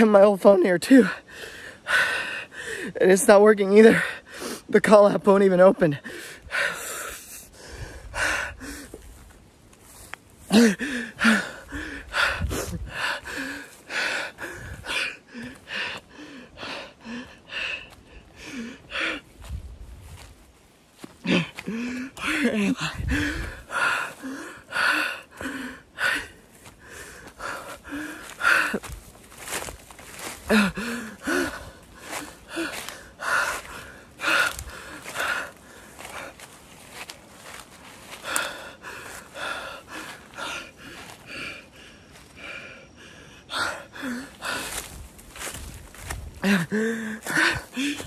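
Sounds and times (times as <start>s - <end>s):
man breathing hard: 1.0s - 3.0s, 6.0s - 20.3s, 21.0s - 48.0s
man sobbing: 5.9s - 8.7s, 10.4s - 19.2s, 21.2s - 26.4s, 30.2s - 35.5s, 46.4s - 48.0s.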